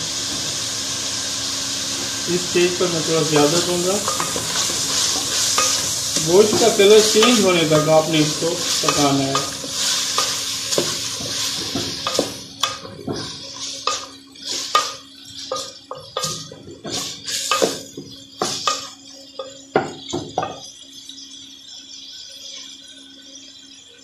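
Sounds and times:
frying sizzle: 0.0 - 24.0
wooden spoon scraping metal pot: 3.4 - 18.9.

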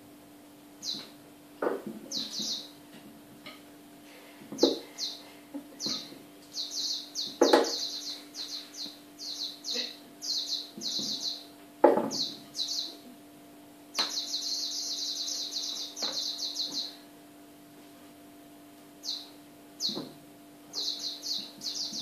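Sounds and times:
high-pitched chirping trills: 0.8 - 1.0, 2.1 - 2.7, 4.9 - 11.5, 12.1 - 13.0, 14.0 - 17.0, 19.0 - 20.0, 20.7 - 22.0.

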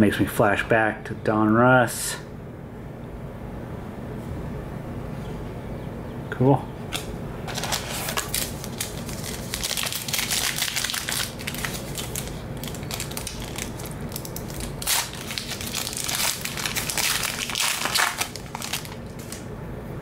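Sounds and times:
foil wrapper crinkling: 7.5 - 19.5.

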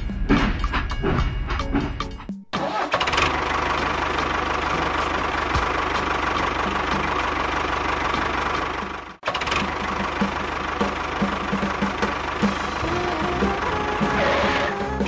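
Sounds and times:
tractor engine knocking: 2.7 - 14.5.

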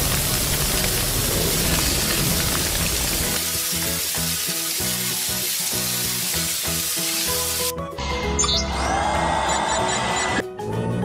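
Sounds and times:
hissing water jet spray: 0.0 - 7.7
plucked rhythmic background music: 3.6 - 11.0.

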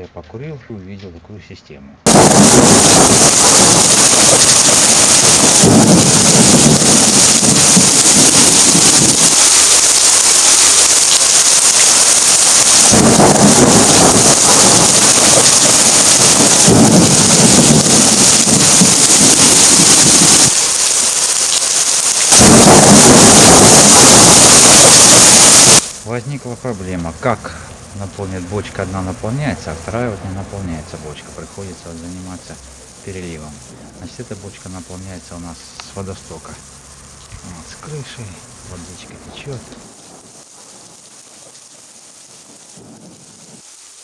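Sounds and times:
low rumbles of thunder: 2.1 - 9.4, 12.9 - 20.6, 22.4 - 25.2, 42.3 - 43.7
heavy rain pouring: 2.1 - 44.0.

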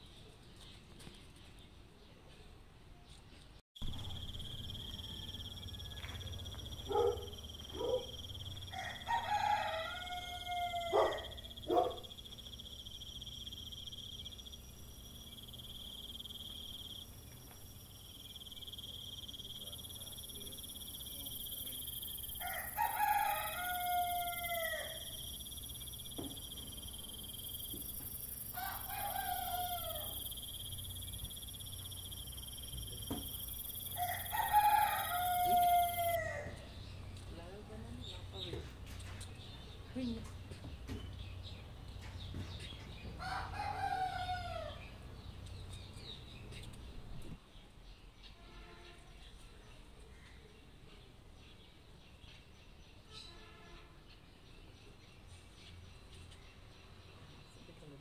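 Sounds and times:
high-pitched insect drone: 3.8 - 8.8, 11.3 - 36.2
rooster crowing: 4.1 - 11.9, 20.2 - 25.7, 27.4 - 32.5, 33.1 - 36.7, 43.2 - 44.9.

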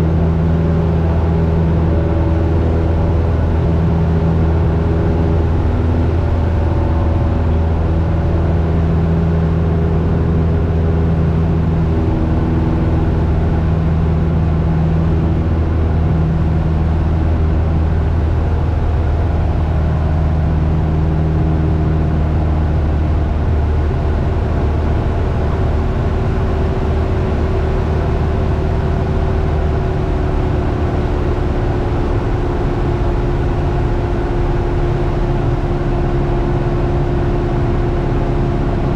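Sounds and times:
propeller plane engine drone: 0.0 - 38.9.

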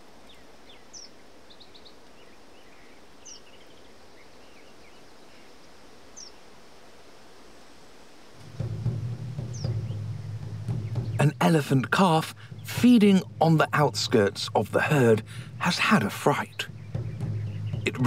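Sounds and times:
bird chirps: 0.0 - 5.5, 8.4 - 18.0
outdoor ambience: 0.0 - 18.0
high falling bird call: 8.4 - 18.0.

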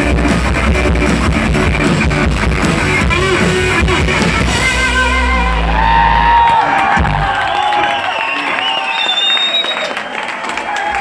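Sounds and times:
bass guitar: 0.0 - 8.0
drum kit: 0.0 - 8.0
electric guitars: 0.0 - 8.1.

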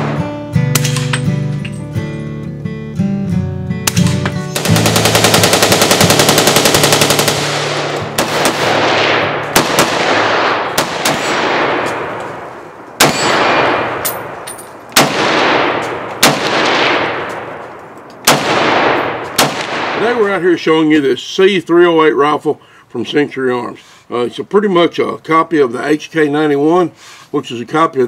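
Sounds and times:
rapid rifle fire burst: 4.5 - 11.8, 15.0 - 17.2
single rifle shots echoing: 6.6 - 20.4.

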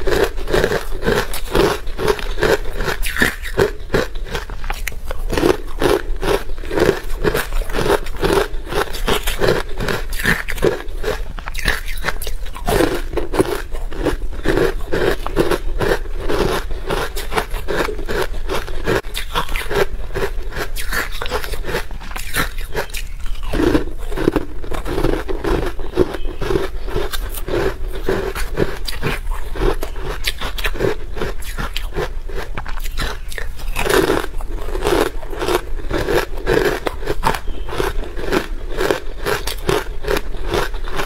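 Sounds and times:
crunching and chewing ice: 0.0 - 41.0.

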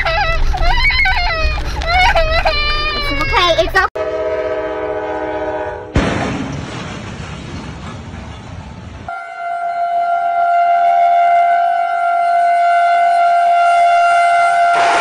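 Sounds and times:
locomotive horn blast: 4.0 - 6.0, 9.1 - 15.0
train hitting truck trailer: 5.9 - 9.1, 14.7 - 15.0.

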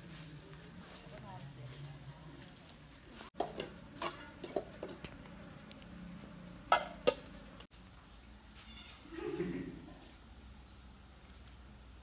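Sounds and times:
cat crunching dry food: 4.8 - 6.0.

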